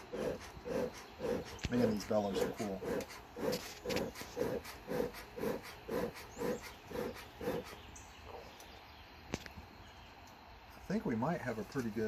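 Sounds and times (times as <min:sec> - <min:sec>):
bellows puffing air: 0:00.0 - 0:07.9.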